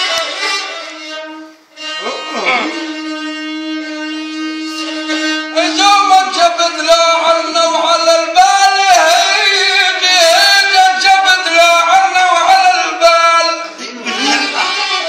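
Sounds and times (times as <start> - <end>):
spike fiddle bowed note: 0.0 - 5.8
man singing: 2.4 - 15.0.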